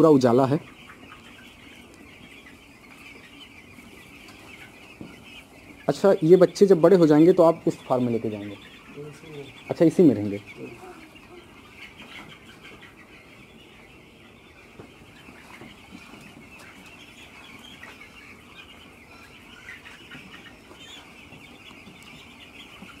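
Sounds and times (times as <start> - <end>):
chicks peeping: 0.0 - 23.0.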